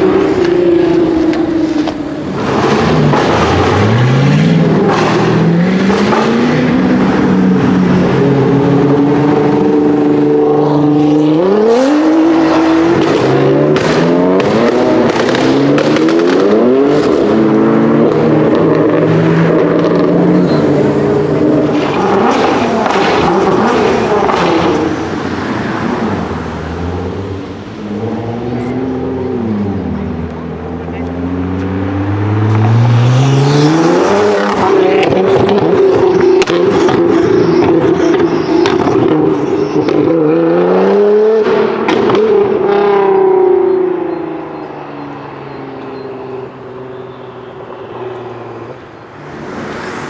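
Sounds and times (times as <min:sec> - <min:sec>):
car engines accelerating and passing: 0:00.0 - 0:50.0
exhaust pops and bangs: 0:12.9 - 0:17.2.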